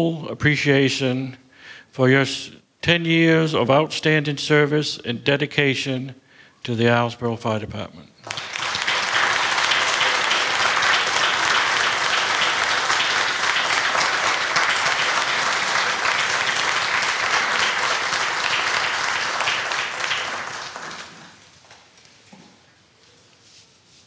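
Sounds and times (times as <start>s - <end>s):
audience applauding: 8.2s - 21.5s.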